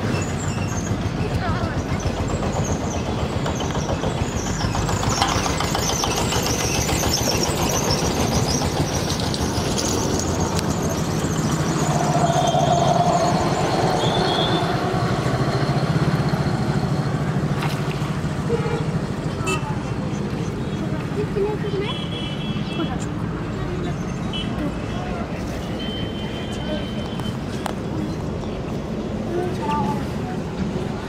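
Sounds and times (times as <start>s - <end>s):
engine running: 0.0s - 21.2s
high squealing tone: 9.5s - 15.8s.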